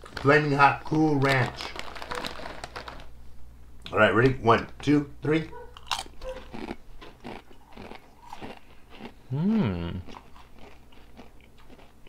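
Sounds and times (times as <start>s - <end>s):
people crunching chips: 0.0s - 3.2s, 5.7s - 12.0s
person humming mmm: 9.2s - 10.2s.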